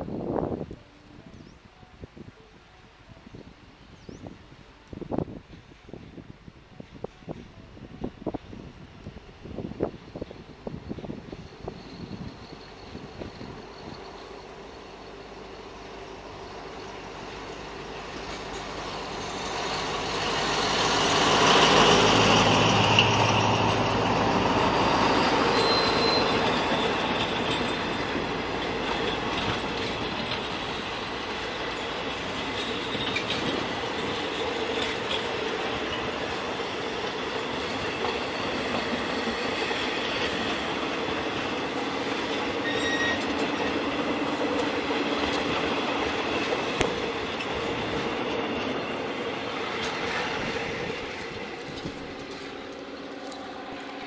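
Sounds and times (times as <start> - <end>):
diesel locomotive passing: 0.0 - 54.0
train coaches rolling on rails: 4.8 - 54.0
high wheel squeals: 11.0 - 15.3, 19.4 - 30.8, 37.5 - 44.0.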